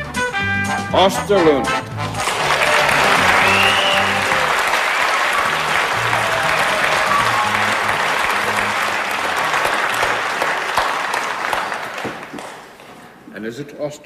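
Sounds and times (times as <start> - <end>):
band music: 0.0 - 10.4
audience applauding: 2.0 - 13.2.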